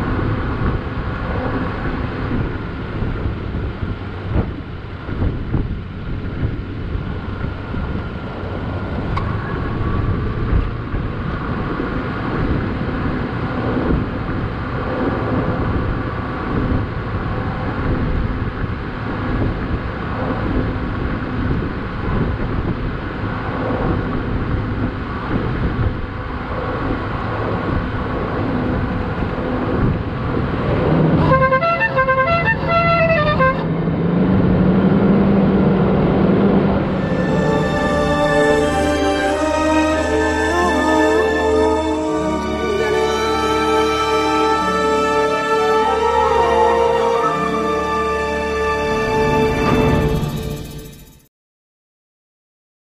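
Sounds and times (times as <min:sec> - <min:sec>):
wind buffeting microphone: 0:00.0 - 0:39.4
vehicle engine running: 0:00.0 - 0:43.8, 0:49.1 - 0:51.3
vehicle pulling away: 0:00.0 - 0:51.3
car horn short toots: 0:31.2 - 0:33.7.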